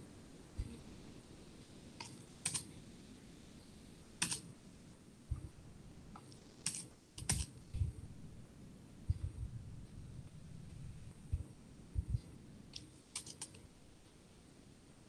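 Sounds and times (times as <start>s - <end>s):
computer keystrokes and clicks: 2.0s - 2.7s, 4.2s - 4.5s, 6.2s - 7.6s, 12.7s - 13.6s
dull low thumps: 5.3s - 5.7s, 7.7s - 8.4s, 9.0s - 12.4s.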